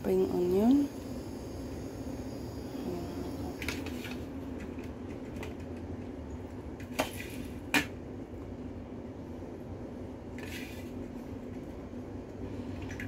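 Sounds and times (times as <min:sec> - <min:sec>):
low hum: 0:00.0 - 0:06.8.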